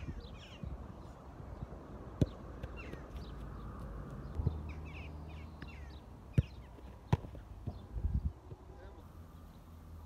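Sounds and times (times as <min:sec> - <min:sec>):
wind rumble on microphone: 0:00.0 - 0:02.1, 0:07.6 - 0:08.6
birds chirping: 0:00.0 - 0:10.0
football kicked: 0:02.2 - 0:03.0, 0:06.3 - 0:07.8.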